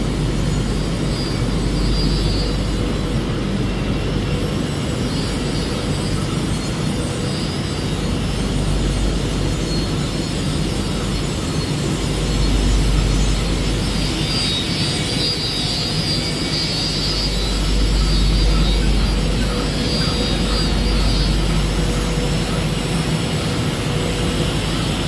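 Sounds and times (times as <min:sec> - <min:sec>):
factory machinery droning: 0:00.0 - 0:25.0
deep rumble: 0:16.9 - 0:25.0.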